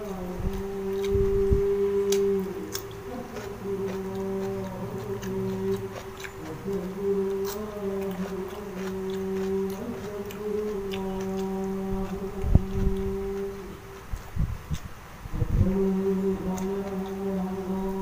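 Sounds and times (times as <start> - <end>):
steady low hum: 0.0 - 18.0
chewing and lip smacks: 2.1 - 14.9.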